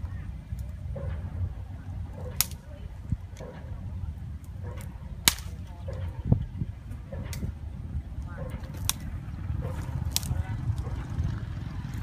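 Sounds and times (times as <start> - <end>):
wind rumbling on microphone: 0.0 - 12.0
dry branches snapping: 2.2 - 3.5, 4.4 - 5.9, 8.2 - 11.1.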